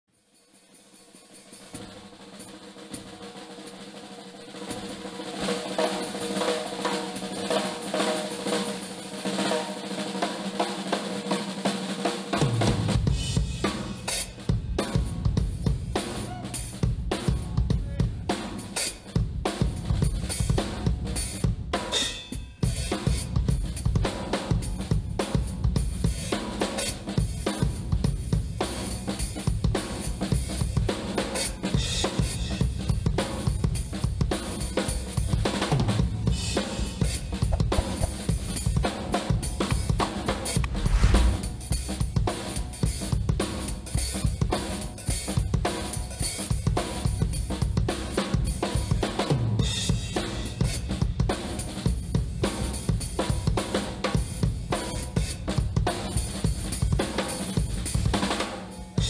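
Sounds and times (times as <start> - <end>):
drum-kit beat: 35.0 - 42.3.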